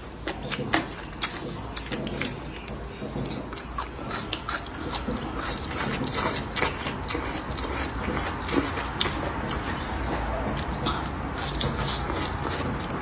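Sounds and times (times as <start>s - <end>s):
chewing and slurping food: 0.0s - 13.0s
wet mouth clicks: 0.3s - 13.0s.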